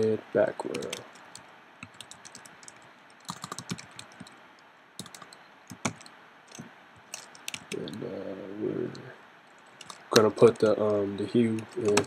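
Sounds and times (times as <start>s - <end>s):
computer keyboard typing: 0.7s - 4.4s, 5.0s - 8.1s, 9.6s - 12.0s.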